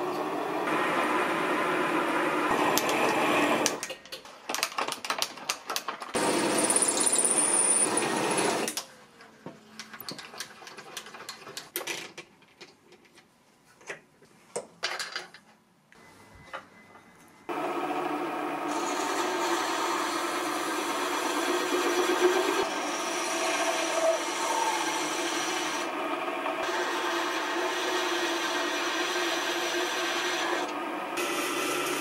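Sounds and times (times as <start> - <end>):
lathe motor humming: 17.5 - 32.0.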